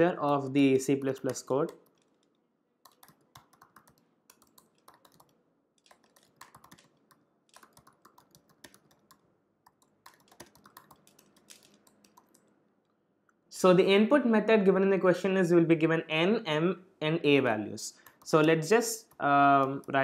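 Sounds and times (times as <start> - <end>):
laptop keyboard typing: 0.0 - 12.5, 18.0 - 20.0.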